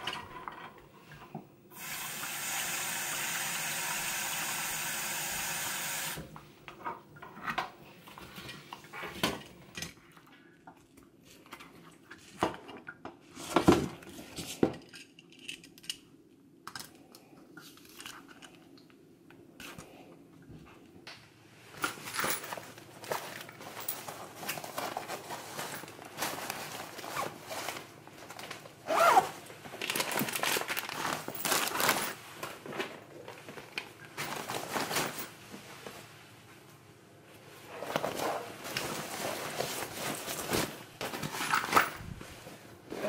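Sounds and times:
plastic crinkling: 21.9s - 35.4s, 37.8s - 42.6s.

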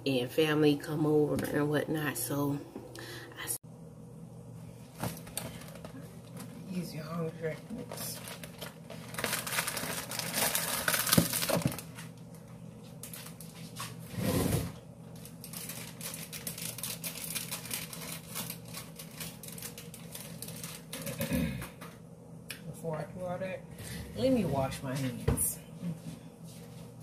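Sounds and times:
plastic packaging crinkling: 7.6s - 14.0s, 15.1s - 21.2s.

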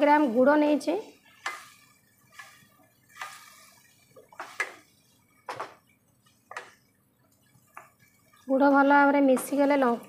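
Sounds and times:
spoon scraping a pan: 1.1s - 8.5s.

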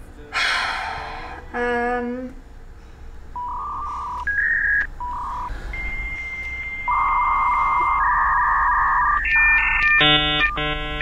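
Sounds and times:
dial-up modem connecting: 3.4s - 11.0s.

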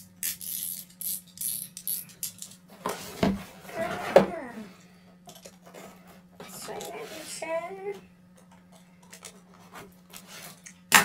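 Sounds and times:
cardboard box scraping: 2.8s - 4.5s.

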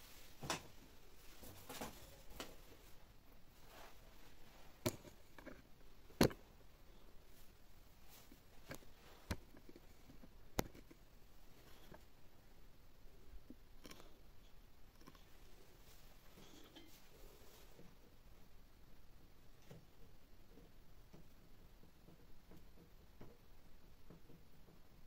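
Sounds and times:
faint scratching: 13.2s - 18.2s.

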